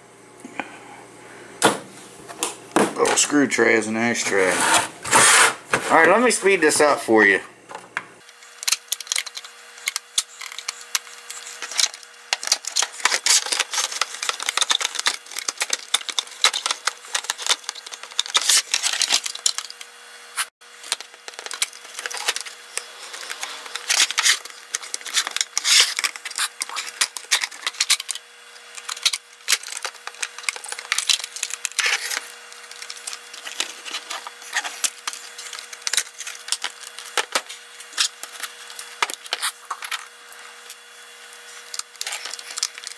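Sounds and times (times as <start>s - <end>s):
faint steady hum: 0.0s - 42.9s
plastic clicks and scrapes: 8.3s - 19.9s, 20.8s - 40.1s, 41.4s - 42.9s.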